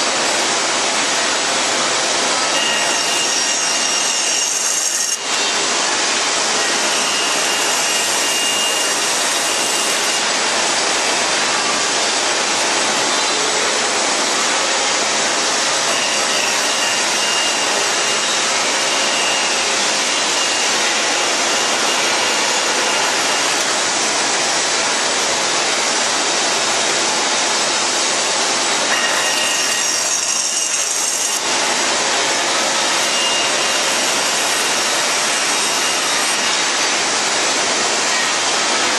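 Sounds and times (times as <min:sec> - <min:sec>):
band saw cutting wood: 0:00.0 - 0:38.9.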